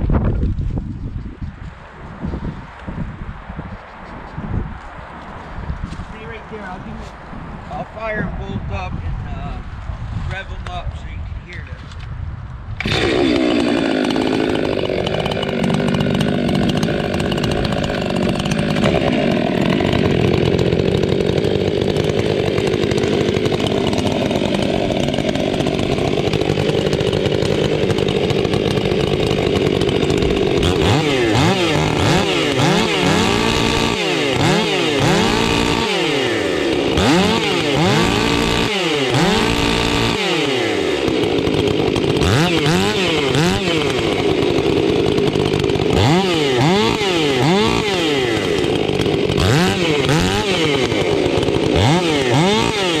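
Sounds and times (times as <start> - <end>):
chainsaws revving: 12.8 - 53.0.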